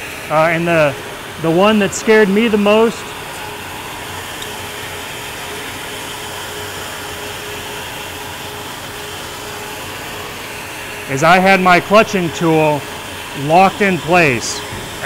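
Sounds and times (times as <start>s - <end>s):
engine room machinery hum: 0.0s - 15.0s.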